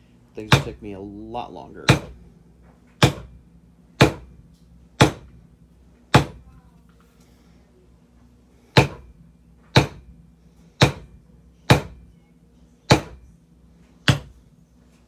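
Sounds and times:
maul striking leather stamping tool: 0.4s - 0.9s, 1.8s - 2.2s, 3.0s - 3.4s, 4.0s - 4.4s, 5.0s - 5.4s, 6.1s - 6.4s, 8.7s - 9.1s, 9.7s - 10.1s, 10.8s - 12.1s, 12.9s - 13.2s, 14.0s - 14.4s.

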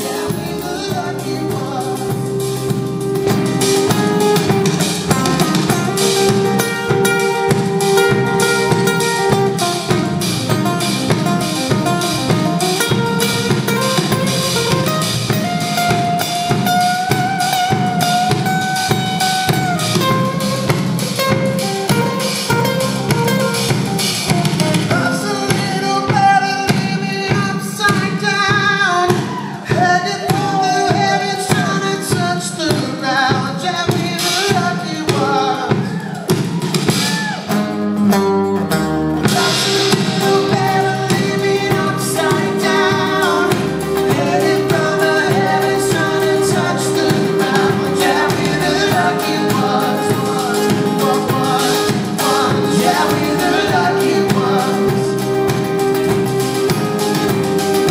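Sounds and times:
man singing: 0.0s - 10.3s, 24.8s - 36.3s, 39.2s - 56.0s
acoustic guitar: 0.0s - 57.9s
live band playing: 0.0s - 57.9s.

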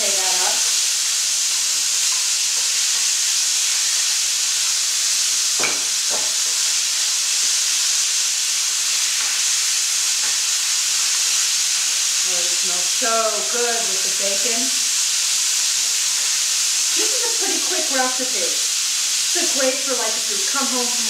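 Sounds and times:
meat sizzling in a skillet: 0.0s - 21.0s.

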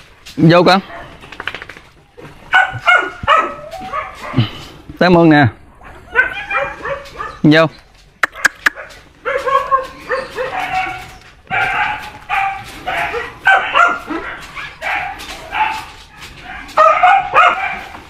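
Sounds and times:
dogs whining and yelping: 2.2s - 4.6s, 5.7s - 7.5s, 8.4s - 18.0s.

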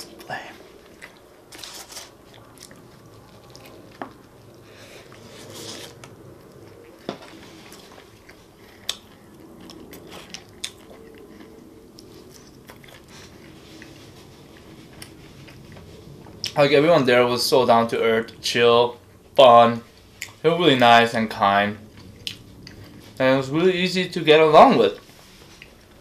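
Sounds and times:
person chewing: 0.0s - 16.6s, 21.8s - 23.2s.

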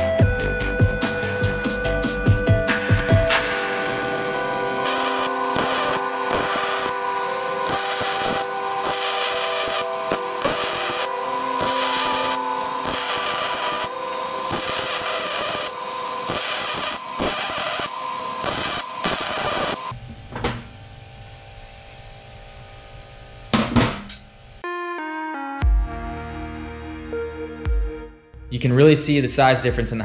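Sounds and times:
steady hum: 2.7s - 24.6s
welding arc crackling: 2.9s - 20.0s.

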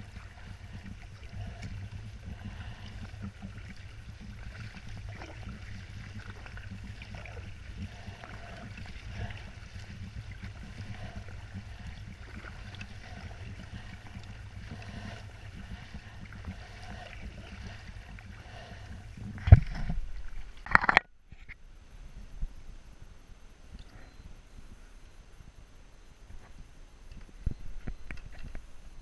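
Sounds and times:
kayak paddle splashing: 0.0s - 20.9s
low steady rumble: 0.0s - 29.0s.

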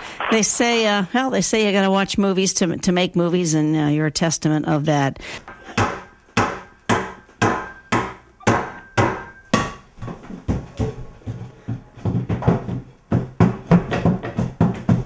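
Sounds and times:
sharp ringing knocks: 5.7s - 9.9s.

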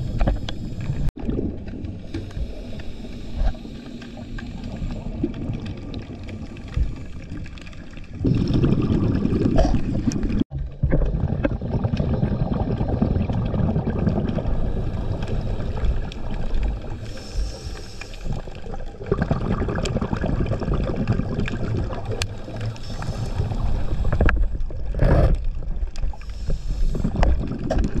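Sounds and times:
exhaled bubbles gurgling: 0.0s - 28.0s
underwater scuba breathing: 2.0s - 8.6s, 14.3s - 18.8s, 22.4s - 25.4s, 26.0s - 27.8s.

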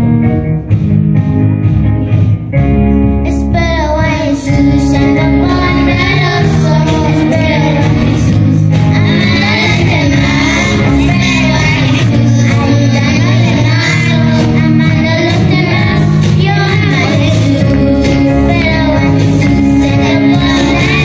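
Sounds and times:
worship band playing: 0.0s - 21.0s
children singing: 4.6s - 21.0s.

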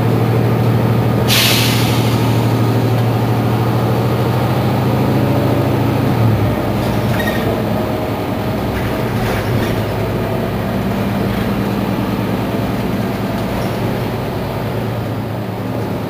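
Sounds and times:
bus engine hum: 0.0s - 16.0s.

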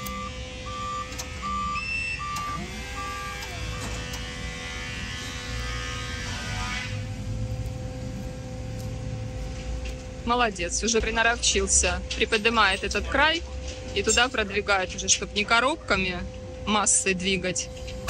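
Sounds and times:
short whine: 0.0s - 10.2s
reversing alarm beeping: 0.0s - 13.3s
forklift engine hum: 0.0s - 18.0s.

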